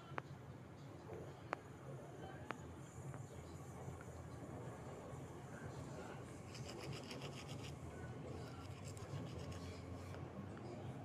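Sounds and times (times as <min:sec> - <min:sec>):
faint rapid scratching: 0:04.6 - 0:10.8.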